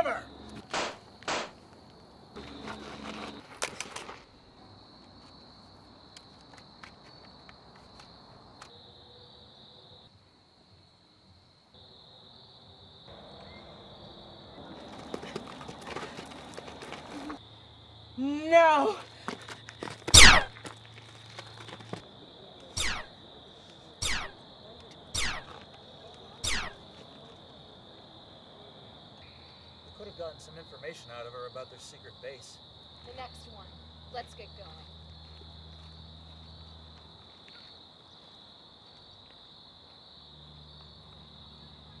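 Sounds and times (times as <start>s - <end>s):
crickets trilling: 0.0s - 42.0s
ray gun zaps: 0.7s - 1.6s, 22.8s - 23.1s, 24.0s - 24.4s, 25.2s - 25.5s, 26.4s - 26.8s.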